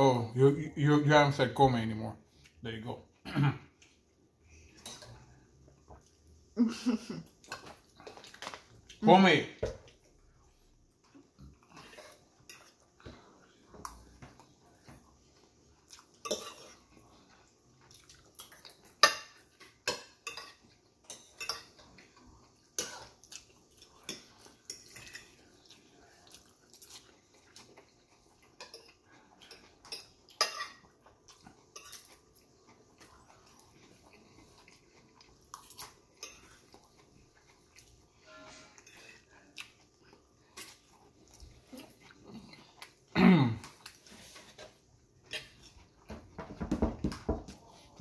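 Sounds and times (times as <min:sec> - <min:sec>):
fork scraping ceramic plate: 0:38.2 - 0:39.3.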